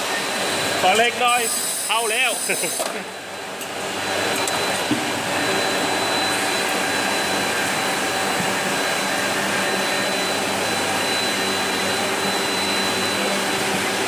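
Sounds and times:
filling machine whirring: 0.0 - 14.0
high whine: 3.6 - 14.0.

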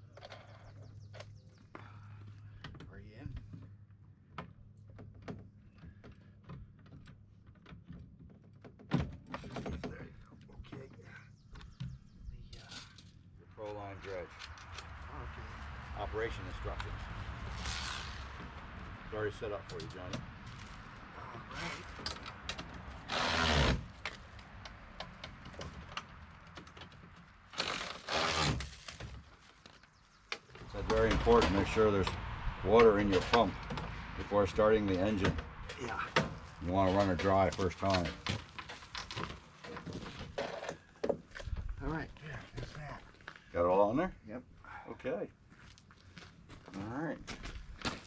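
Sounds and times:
rustling bursts: 17.2 - 18.4
small clicks and knocks: 24.0 - 28.0.

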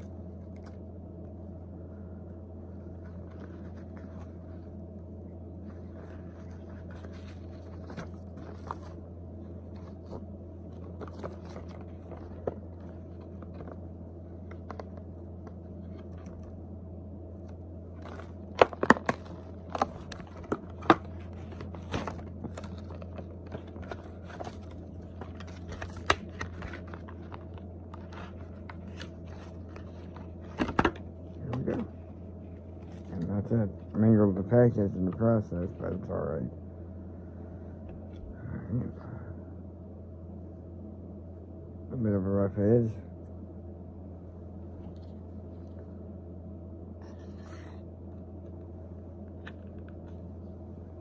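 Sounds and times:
low hum: 0.0 - 51.0
plastic packaging crinkling and tearing: 18.0 - 31.0.

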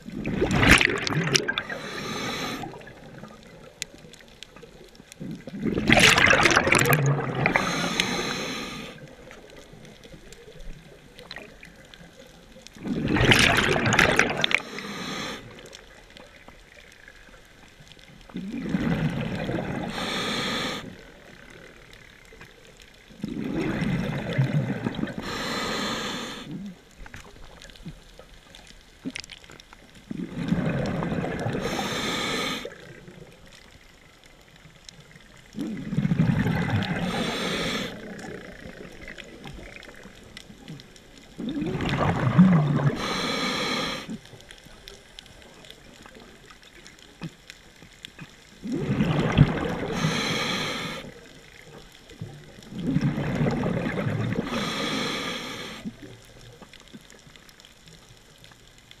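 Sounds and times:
bubbly exhalations underwater: 0.0 - 4.3, 5.2 - 10.6, 12.8 - 16.4, 18.3 - 21.4, 23.1 - 28.1, 30.0 - 33.4, 35.4 - 44.4, 48.1 - 56.2
regulator inhalations: 1.6 - 2.8, 7.5 - 9.0, 14.6 - 15.5, 19.9 - 20.9, 25.2 - 26.5, 31.6 - 32.8, 37.0 - 38.0, 43.0 - 44.2, 49.9 - 51.1, 54.4 - 55.9.

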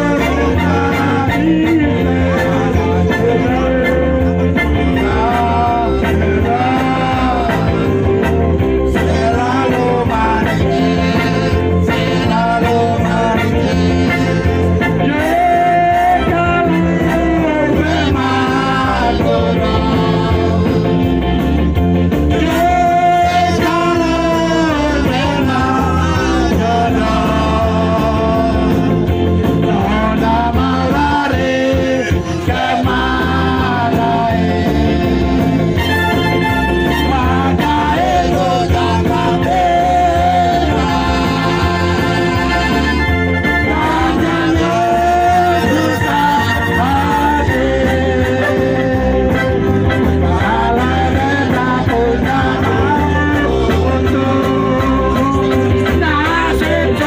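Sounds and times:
dance music with singing: 22.3 - 57.0.

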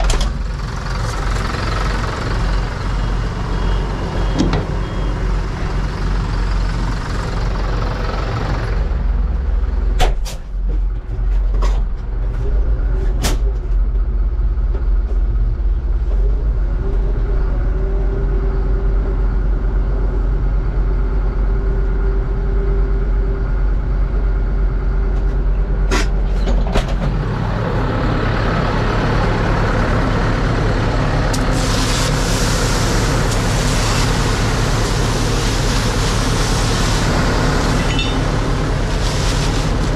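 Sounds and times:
tractor diesel engine running: 0.0 - 39.9
fertilizer pouring into hopper: 31.5 - 39.9.

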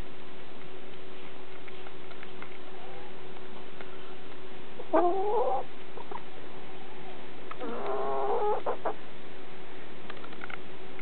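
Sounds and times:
hens clucking: 4.8 - 6.2, 7.6 - 9.0.

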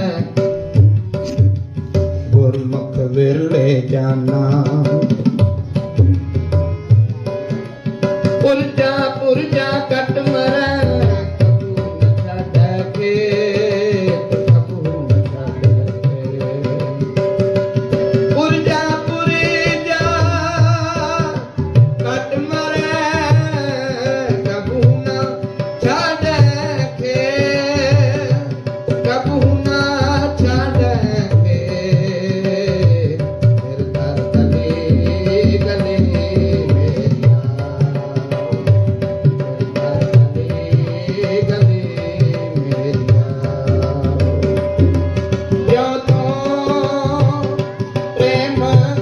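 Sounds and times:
harmonium chords: 0.0 - 49.0
tabla beating: 0.0 - 49.0
person singing: 18.3 - 49.0.

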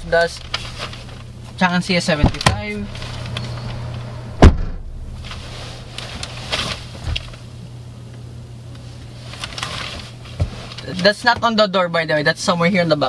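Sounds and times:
low cabin hum: 0.0 - 11.7
clothes rustling: 0.1 - 1.6, 5.1 - 7.6, 8.8 - 11.2.

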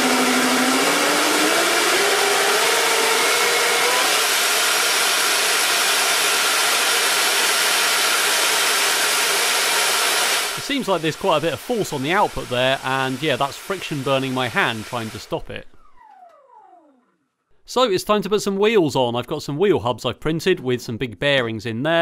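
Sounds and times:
electric fans rushing air: 0.0 - 17.0.

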